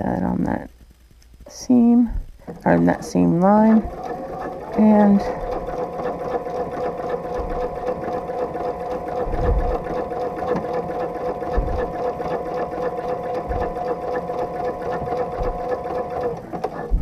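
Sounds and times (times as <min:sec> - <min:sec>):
sewing machine running: 0:02.5 - 0:17.0
dull low thumps: 0:09.2 - 0:09.9, 0:11.4 - 0:11.9.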